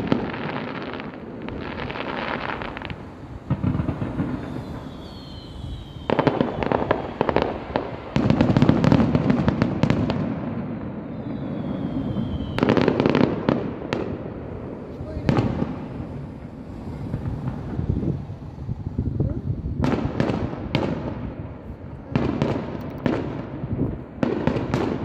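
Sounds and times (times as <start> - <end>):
fireworks bursting: 0.0 - 25.0
fireworks crackling: 0.0 - 25.0
whistle falling in pitch: 11.1 - 12.8.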